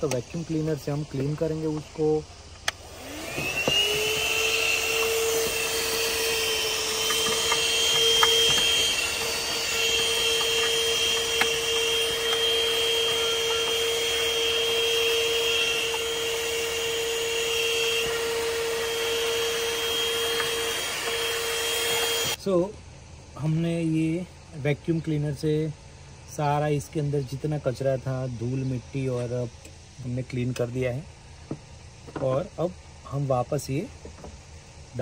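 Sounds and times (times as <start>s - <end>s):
vacuum cleaner running: 0.0s - 22.4s.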